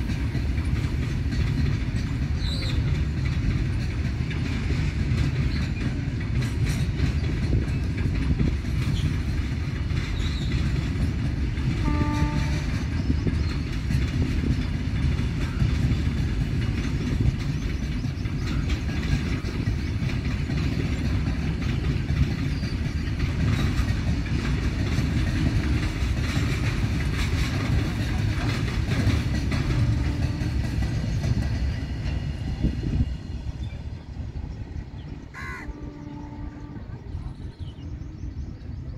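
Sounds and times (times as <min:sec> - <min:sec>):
freight train rumbling past: 0:00.0 - 0:38.9
train horn: 0:11.7 - 0:13.0, 0:29.5 - 0:30.8, 0:35.5 - 0:37.3.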